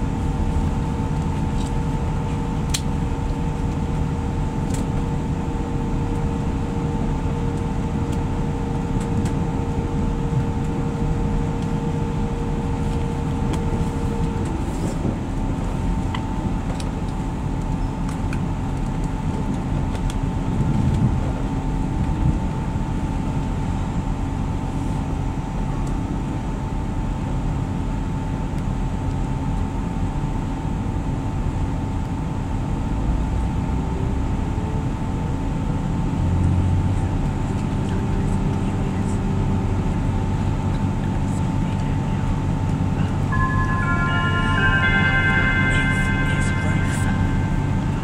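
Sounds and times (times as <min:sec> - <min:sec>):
train diesel engine drone: 0:00.0 - 0:48.0
wheels rumbling on track: 0:00.0 - 0:48.0
steady whining tones: 0:41.7 - 0:48.0
rising pitch note: 0:42.9 - 0:48.0.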